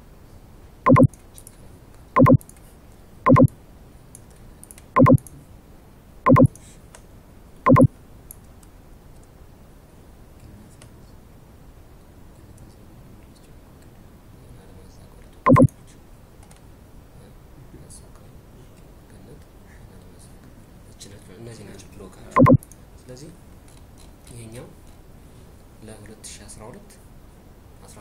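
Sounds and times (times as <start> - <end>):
short loud pitched tones: 0.9 - 1.1, 2.2 - 2.4, 3.3 - 3.5, 5.0 - 5.2, 6.3 - 6.5, 7.7 - 7.9, 15.5 - 15.7, 22.4 - 22.6
keyboard typing: 0.9 - 1.2, 2.2 - 2.5, 3.3 - 3.5, 5.0 - 5.3, 6.3 - 6.6, 7.7 - 7.9, 15.5 - 15.7, 22.4 - 22.6.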